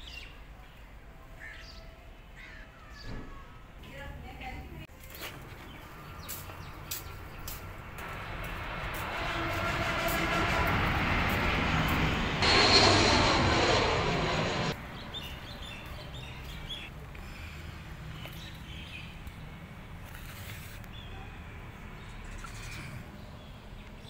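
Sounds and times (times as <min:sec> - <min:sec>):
high engine whine: 0:05.9 - 0:16.2
jet airliner flying overhead: 0:05.9 - 0:17.9.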